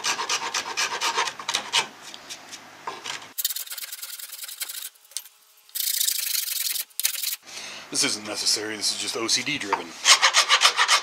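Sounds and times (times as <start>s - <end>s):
file rasping on wood: 0.0s - 1.9s, 10.0s - 11.0s.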